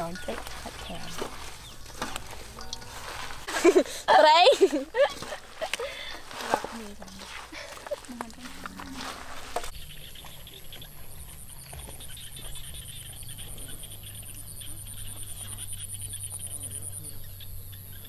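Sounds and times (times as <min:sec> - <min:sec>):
hands squishing vegetables in bowl: 0:00.0 - 0:03.5, 0:05.1 - 0:10.4
pulsing insect chirp: 0:08.6 - 0:18.0.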